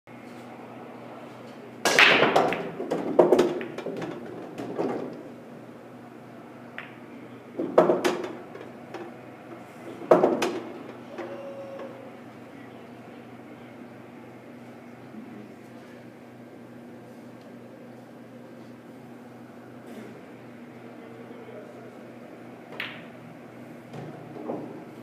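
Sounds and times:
cue ball cracking into rack: 0:01.8 - 0:05.2, 0:07.6 - 0:09.1, 0:10.0 - 0:12.0, 0:22.7 - 0:23.1
pool balls clattering: 0:01.9 - 0:05.4, 0:06.8 - 0:12.1.

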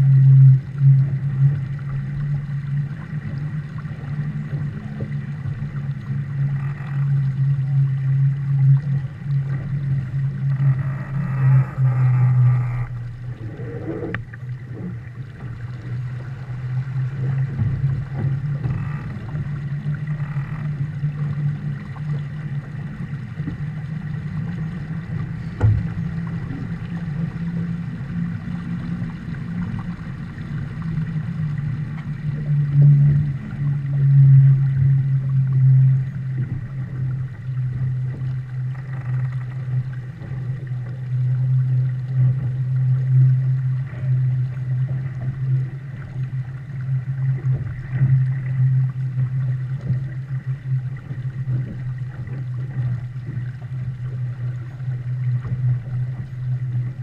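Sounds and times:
wind and water rushing: 0:00.0 - 0:57.0.

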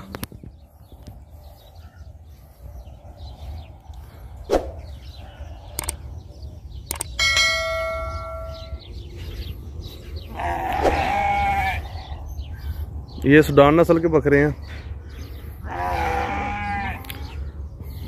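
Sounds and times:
animal bleating: 0:10.3 - 0:12.2, 0:15.6 - 0:17.3.

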